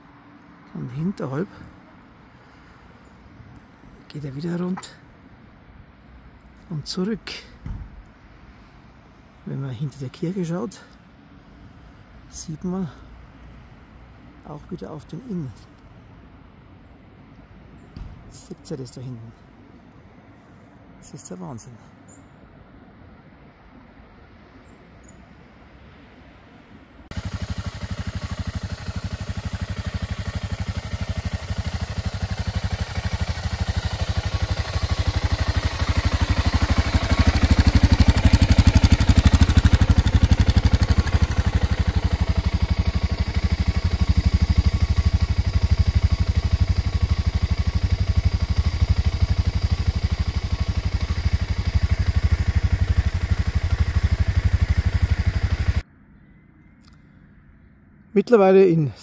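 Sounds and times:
motorcycle engine running: 0:27.1 - 0:55.8.

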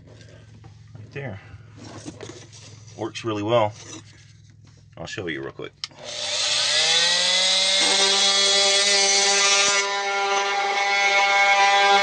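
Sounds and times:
oscillating multi-tool buzzing: 0:05.9 - 0:12.0
blade shaving wooden floorboard: 0:06.0 - 0:12.0.

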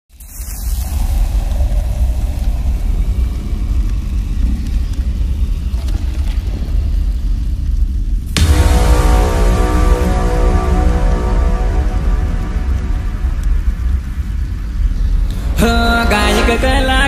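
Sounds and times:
faint hiss: 0:00.1 - 0:17.0
low rumble: 0:00.2 - 0:17.0
music with sustained tones: 0:08.4 - 0:17.0.

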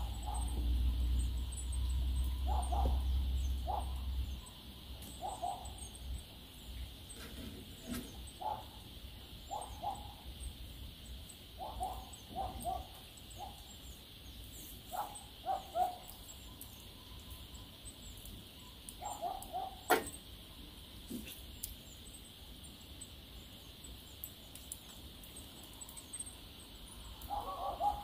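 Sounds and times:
dog barking: 0:00.0 - 0:00.5, 0:02.5 - 0:03.0, 0:03.6 - 0:04.0, 0:05.2 - 0:05.8, 0:08.4 - 0:08.7, 0:09.5 - 0:10.2, 0:11.6 - 0:13.6, 0:14.9 - 0:16.1, 0:19.0 - 0:20.2, 0:27.3 - 0:28.0.

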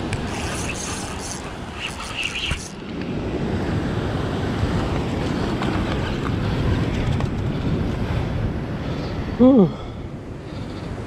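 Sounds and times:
wind rushing over microphone: 0:00.0 - 0:11.0.

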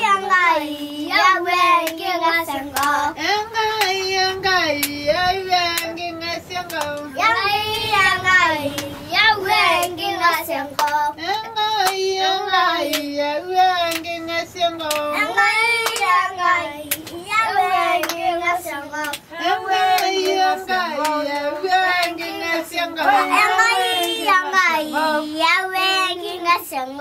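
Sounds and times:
children singing: 0:00.0 - 0:03.8, 0:14.9 - 0:27.0
hands clapping a beat: 0:02.7 - 0:03.0, 0:03.8 - 0:04.2, 0:04.8 - 0:05.0, 0:05.7 - 0:05.9, 0:06.6 - 0:07.1, 0:10.7 - 0:12.1, 0:12.8 - 0:13.2, 0:13.8 - 0:14.2, 0:14.8 - 0:16.2, 0:16.8 - 0:17.2, 0:18.0 - 0:18.3, 0:18.9 - 0:24.4.

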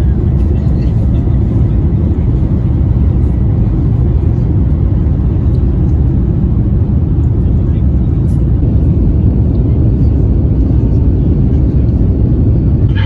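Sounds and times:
jet engines rumbling: 0:00.0 - 0:13.0.

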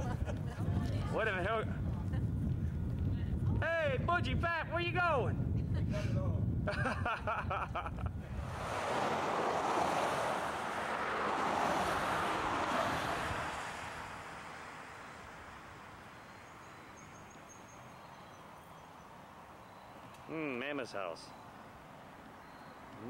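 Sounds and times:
vehicle passing by: 0:08.4 - 0:17.4.

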